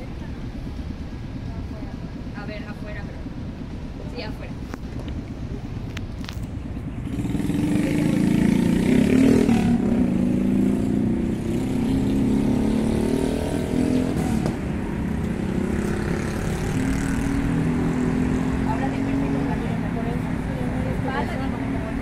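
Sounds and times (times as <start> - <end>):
vehicle engine accelerating: 6.8 - 22.0.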